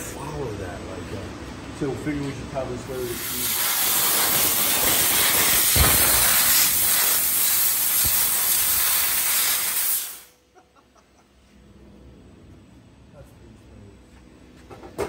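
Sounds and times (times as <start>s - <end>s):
laser cutter gas jet hiss: 2.9s - 10.4s.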